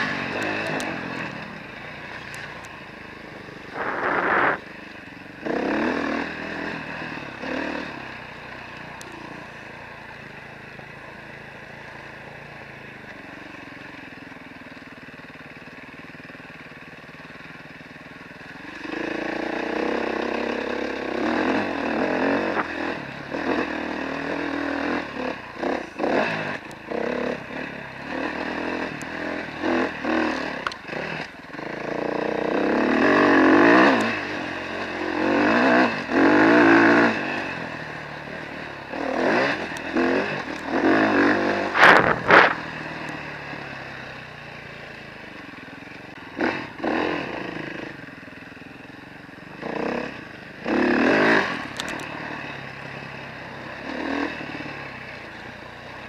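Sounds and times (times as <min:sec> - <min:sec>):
dirt bike engine revving: 0:00.0 - 0:11.0, 0:18.4 - 0:55.5.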